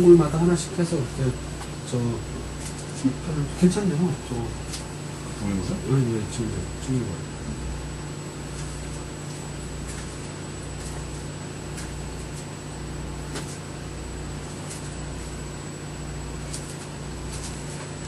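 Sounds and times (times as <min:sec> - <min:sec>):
low electrical hum and hiss: 0:00.0 - 0:18.0
thin high whine: 0:00.0 - 0:18.0.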